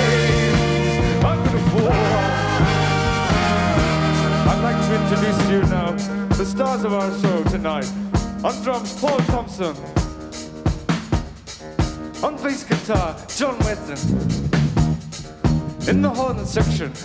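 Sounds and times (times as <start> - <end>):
live rock band playing: 13.7 - 17.0.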